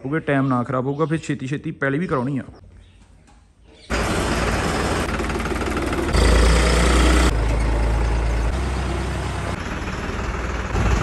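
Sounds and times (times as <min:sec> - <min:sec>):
tractor diesel engine running: 0:03.9 - 0:11.0.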